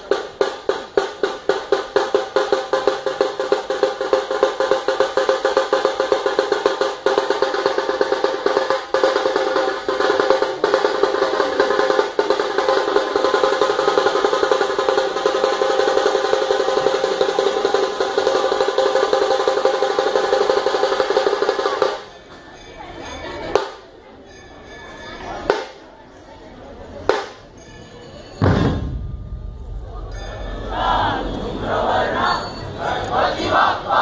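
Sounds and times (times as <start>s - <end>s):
dhol drums struck: 0.0s - 22.1s, 27.0s - 27.5s, 28.4s - 31.5s
tasha drums rattling: 27.1s - 32.7s.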